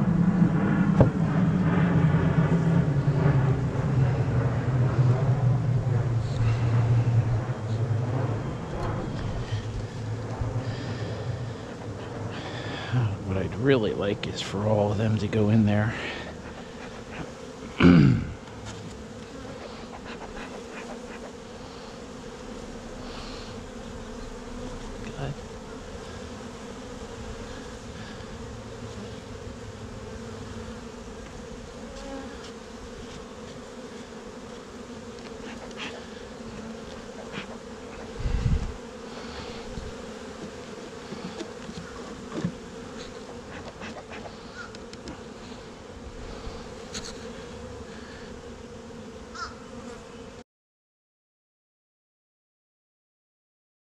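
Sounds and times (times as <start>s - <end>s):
honeybees buzzing: 0.0s - 50.4s
dull low thump: 0.8s - 1.5s.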